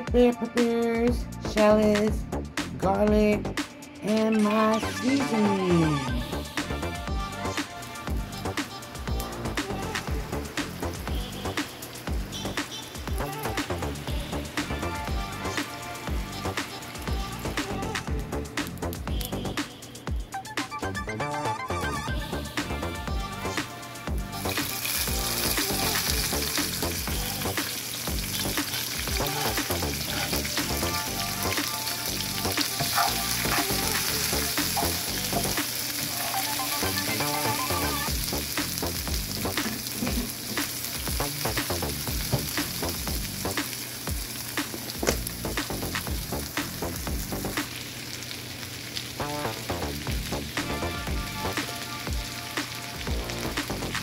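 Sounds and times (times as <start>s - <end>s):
vegetables sizzling in hot oil: 7.4s - 19.0s, 23.6s - 54.0s.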